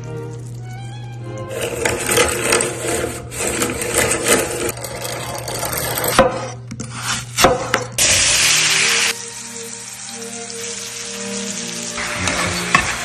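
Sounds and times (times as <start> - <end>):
hand-cranked apple peeler rasping: 1.5 - 6.5
loud sizzle in hot pan: 8.0 - 13.0.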